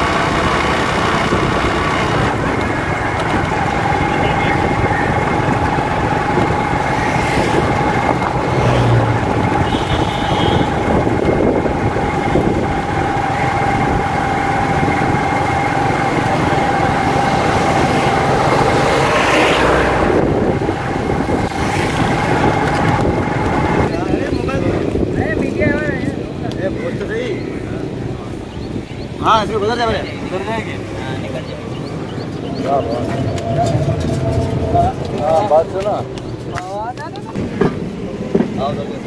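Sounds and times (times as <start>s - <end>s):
motorcycle engine running: 0.0s - 26.0s
road noise: 0.0s - 39.0s
steady whining tone: 0.0s - 39.0s.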